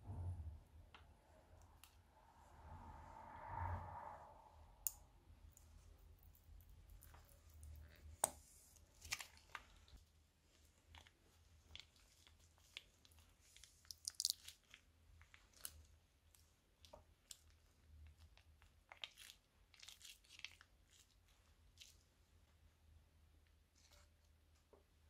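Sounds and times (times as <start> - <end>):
slime squelching: 4.8 - 22.2.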